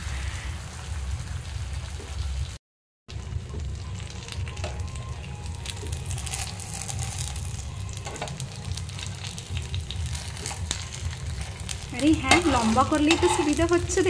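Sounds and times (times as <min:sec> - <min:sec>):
crepe sizzling on a hot pan: 0:03.2 - 0:14.0
metal spatula clicks and scrapes: 0:12.3 - 0:13.8.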